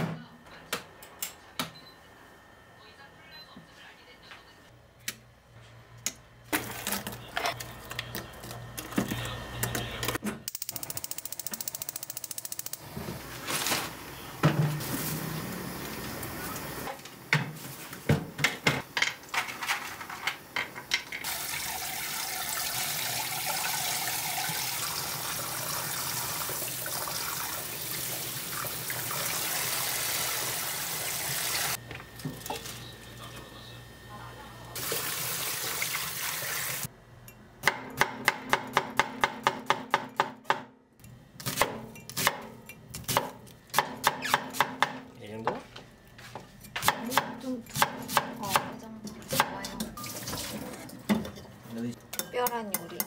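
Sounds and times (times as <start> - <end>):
tap water running into colander: 21.2 - 32.8, 34.8 - 36.9, 50.0 - 51.0.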